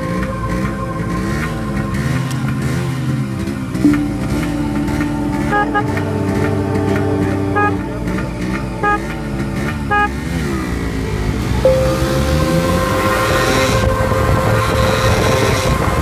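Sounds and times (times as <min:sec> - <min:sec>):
motorcycle engine drone: 0:00.0 - 0:16.0
motorcycle horn toots: 0:07.6 - 0:07.8, 0:09.9 - 0:10.3.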